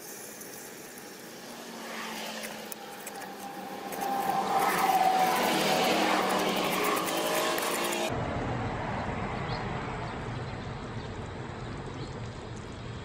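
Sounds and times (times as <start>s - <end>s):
syrup sizzling in a wok: 0.0s - 2.4s
spatula scraping a wok: 1.8s - 8.1s.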